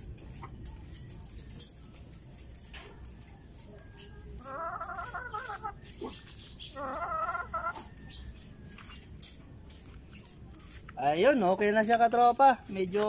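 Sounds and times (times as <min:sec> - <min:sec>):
chicken calling: 0:03.6 - 0:09.4.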